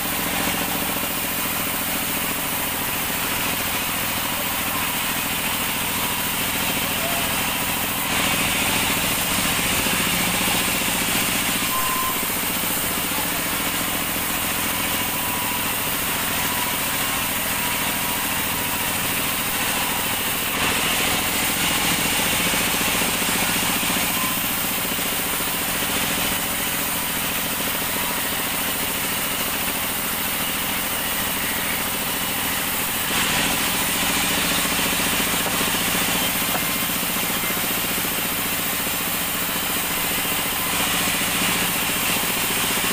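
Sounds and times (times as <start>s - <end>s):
band saw cutting log: 0.0s - 42.9s.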